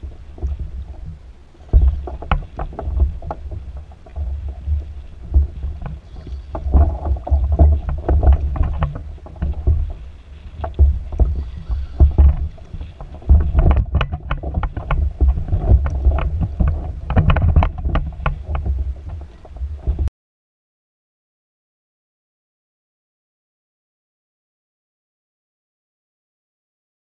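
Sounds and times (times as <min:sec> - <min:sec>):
waves slapping against hull: 0:00.0 - 0:20.1
wind buffeting microphone: 0:00.0 - 0:20.1.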